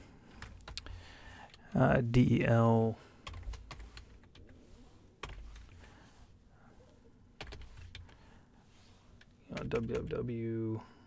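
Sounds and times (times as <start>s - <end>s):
computer keyboard keystrokes: 9.2s - 10.2s.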